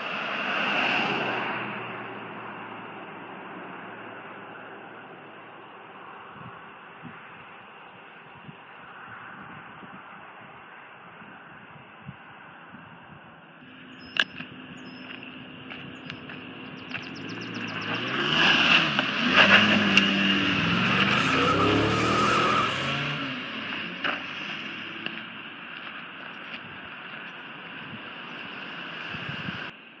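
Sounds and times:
car driving past: 13.8s - 25.0s.

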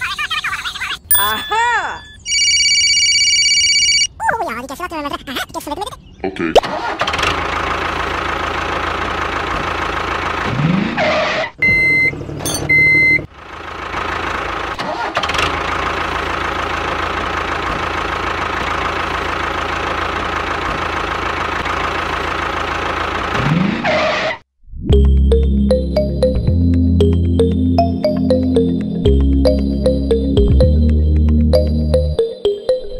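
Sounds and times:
short high beeps: 1.1s - 2.3s
tractor engine running: 6.6s - 23.6s, 25.0s - 32.2s.

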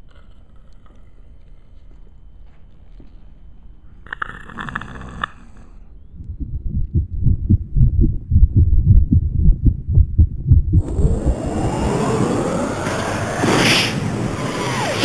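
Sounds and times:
heartbeat thumps: 6.1s - 11.2s.

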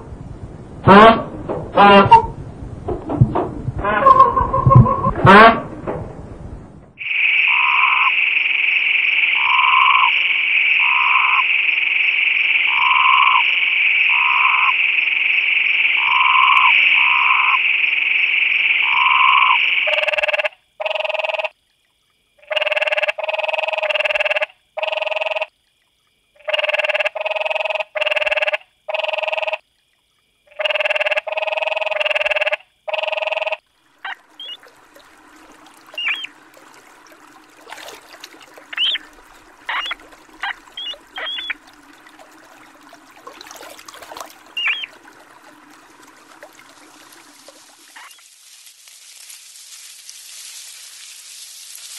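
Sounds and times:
high-pitched croaking chorus: 7.0s - 21.6s, 22.4s - 25.5s, 26.4s - 29.6s, 30.4s - 37.0s, 37.7s - 42.9s, 43.6s - 45.0s, 48.0s - 48.2s
loud croaks in bursts: 7.0s - 21.6s, 22.4s - 25.6s, 26.4s - 29.7s, 30.4s - 47.1s.

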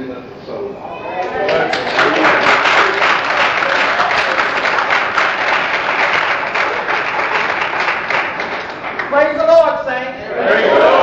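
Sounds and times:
crowd applauding: 1.2s - 9.6s.

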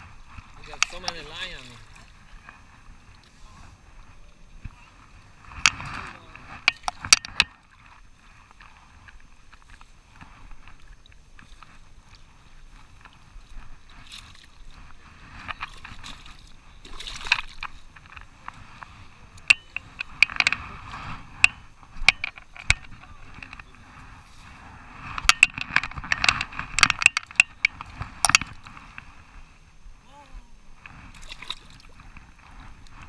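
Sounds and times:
waders sloshing in water: 9.6s - 18.9s, 31.1s - 33.0s
sharp clicks and knocks: 21.4s - 23.6s, 25.1s - 28.6s.

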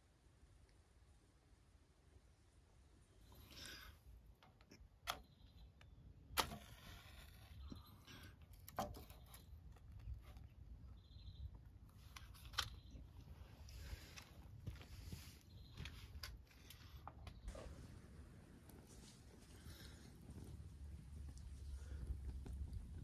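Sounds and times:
faint outdoor hush: 0.0s - 23.0s.

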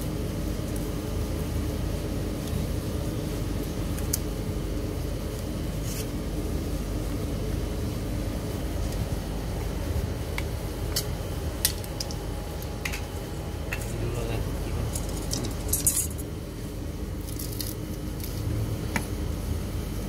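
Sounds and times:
low mechanical hum: 0.0s - 20.0s.

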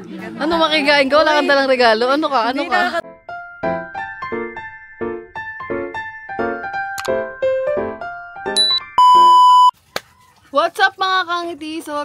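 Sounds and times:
short high bell-like ding: 8.6s - 9.7s.

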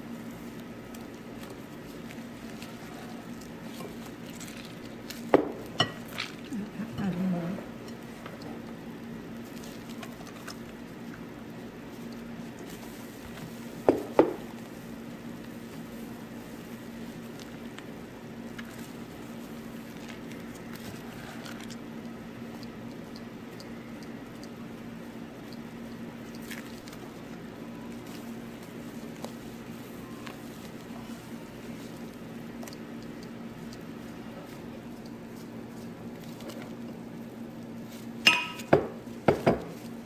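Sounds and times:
wet squishing and splashing: 0.4s - 5.3s, 15.4s - 38.2s.

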